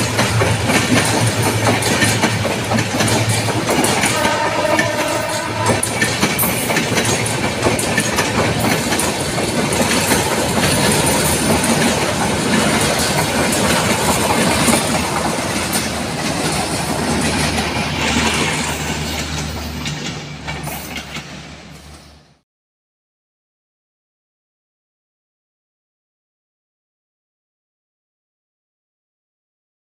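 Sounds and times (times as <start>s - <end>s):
train wheels clattering over rail joints: 0.0s - 22.2s.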